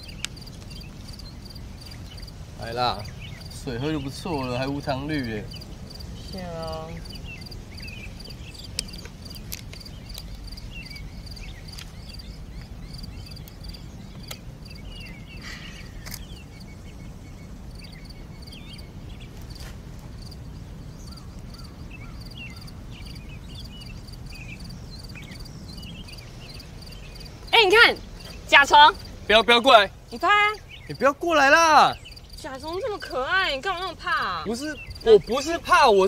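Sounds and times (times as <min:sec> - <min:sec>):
insect pulsing high call: 0:00.0 - 0:36.0
small birds chirping: 0:00.0 - 0:36.0
camera shutter clicks: 0:16.0 - 0:16.3.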